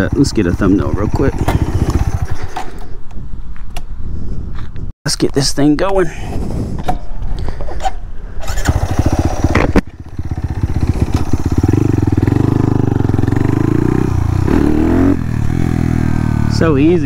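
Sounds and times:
motorcycle engine running: 0.0 - 2.6, 8.5 - 17.0.

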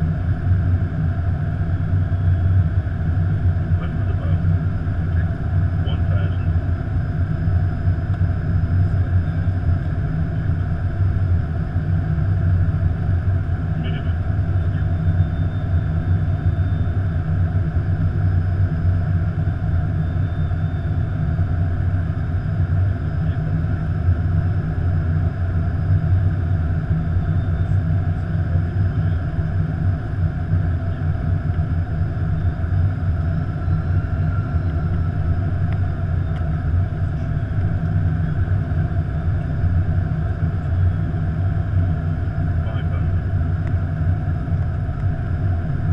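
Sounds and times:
aircraft cockpit engine rumble: 0.0 - 45.9.

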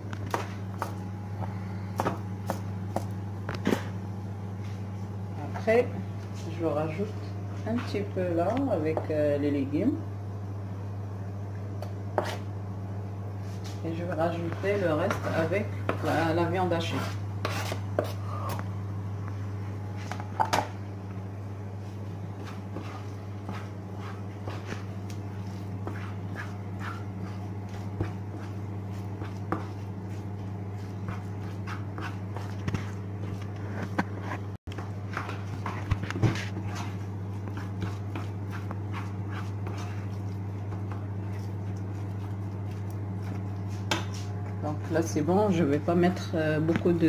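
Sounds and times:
steady low hum: 0.0 - 47.0
spatula scraping frying pan: 16.9 - 18.2.

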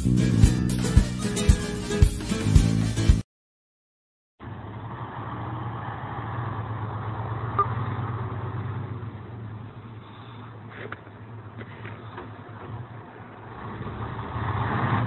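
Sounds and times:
truck engine droning: 4.4 - 15.0.

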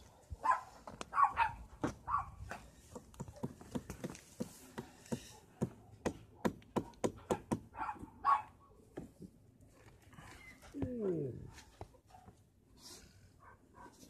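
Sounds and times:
dog yipping: 0.4 - 2.6
sharp taps and knocks: 2.9 - 7.7.

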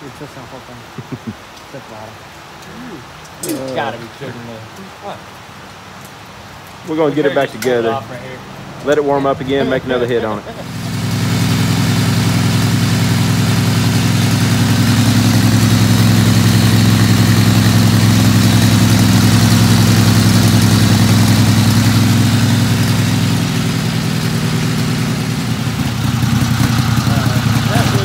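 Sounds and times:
engine running steadily: 7.4 - 28.0.

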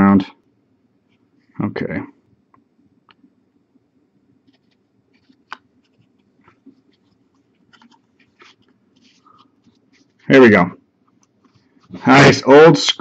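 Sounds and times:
cards scraping and clicking: 4.5 - 10.2.

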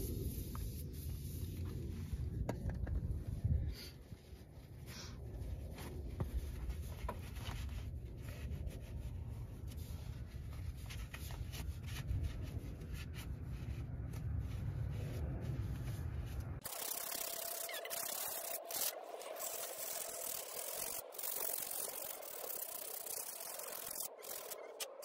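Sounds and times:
low continuous rumble: 0.0 - 18.3.

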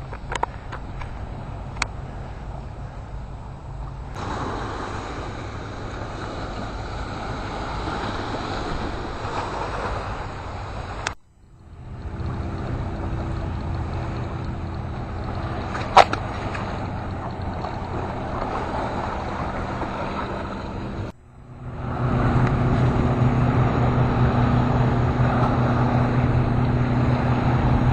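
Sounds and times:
low rumble: 0.0 - 27.9
sea on rocks: 0.0 - 27.9
wind on microphone: 11.8 - 27.9.

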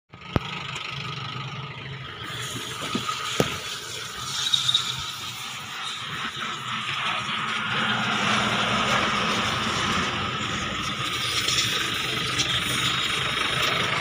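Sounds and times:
mechanical hum with whine: 0.2 - 14.0.

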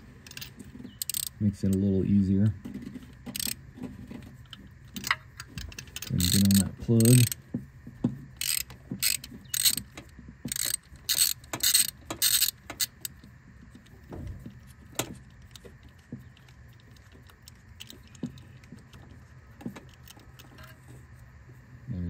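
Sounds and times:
ratchet wrench clicking: 0.2 - 1.8, 3.3 - 3.6, 5.0 - 7.4, 8.4 - 13.2.

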